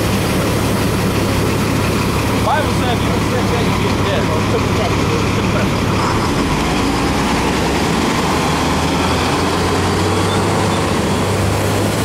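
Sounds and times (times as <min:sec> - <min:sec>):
vehicle engine running: 0:00.0 - 0:12.0.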